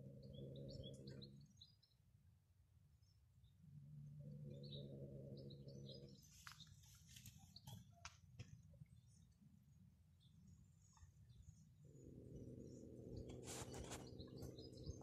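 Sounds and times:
cat growling low: 0.0 - 1.4, 3.7 - 6.3, 11.8 - 15.0
small birds chirping faintly: 0.0 - 15.0.

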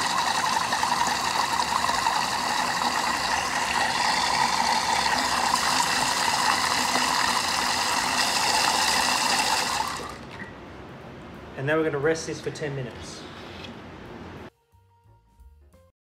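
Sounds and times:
kitchen mixer blade running: 0.0 - 10.3.

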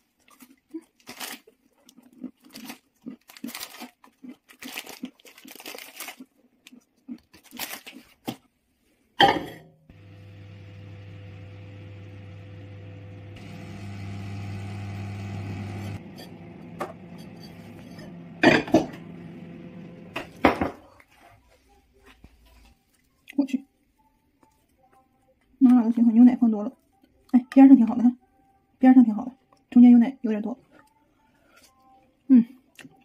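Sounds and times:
microwave oven humming: 9.9 - 20.6.

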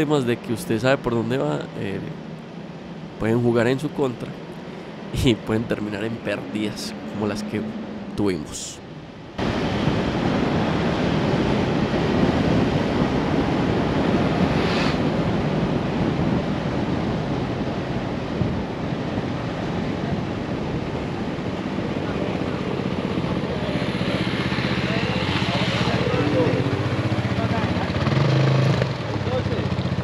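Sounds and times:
engine and tyres rumbling: 4.4 - 30.0
wind on microphone: 4.9 - 28.8
short hiss: 14.5 - 15.0.

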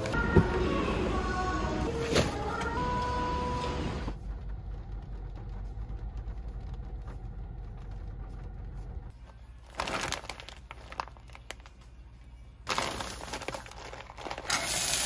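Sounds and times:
supermarket checkout noise: 0.0 - 7.0, 9.6 - 11.8, 12.7 - 15.0
car interior engine rumble: 0.0 - 9.2.

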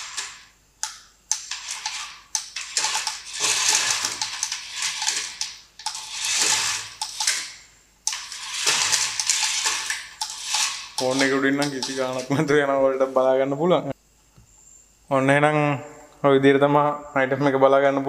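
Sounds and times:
toy truck motor whirring: 0.0 - 12.3.

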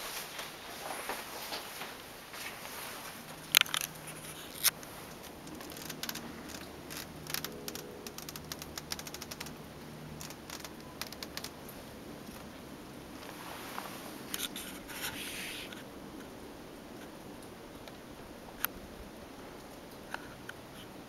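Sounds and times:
small ticks and rubs: 0.1 - 9.6, 10.2 - 12.5, 13.2 - 15.8.

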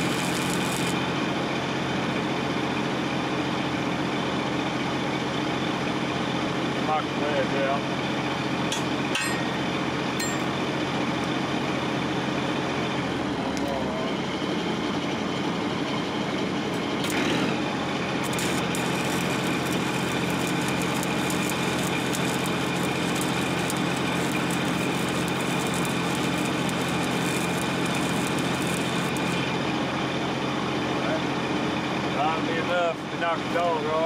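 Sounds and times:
arc welding crackle: 0.0 - 1.1, 16.7 - 29.7
engine drone: 0.0 - 2.8, 8.1 - 32.6.

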